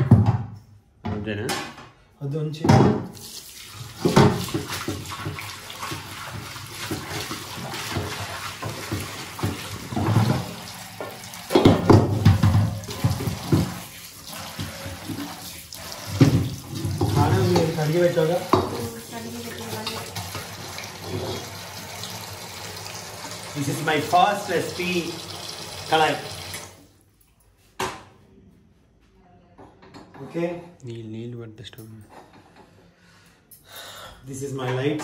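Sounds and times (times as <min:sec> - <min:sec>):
tap running into steel sink: 0:08.0 - 0:13.8, 0:16.1 - 0:18.9
metal knocking against sink: 0:11.5 - 0:13.8.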